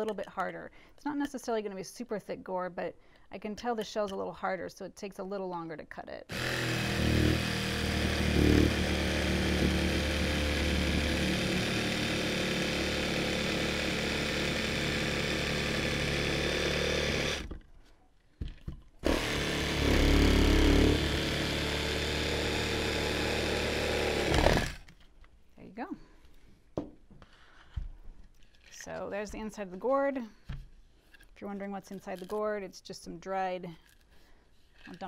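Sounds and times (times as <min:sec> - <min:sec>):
electric jigsaw cutting gourd: 0:06.3 - 0:17.6, 0:19.0 - 0:24.9.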